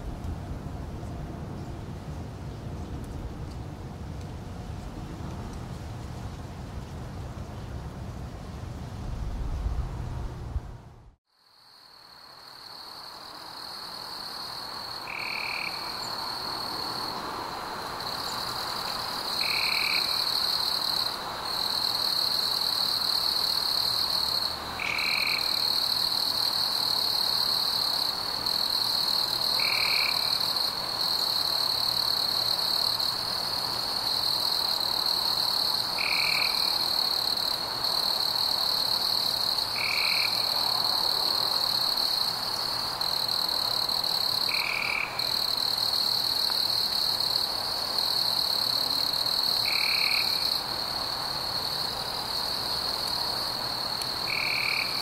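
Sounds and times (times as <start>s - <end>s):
frogs trilling: 14.9s - 16.7s, 24.2s - 26.4s, 39.5s - 40.6s, 43.1s - 46.0s, 54.2s - 55.0s.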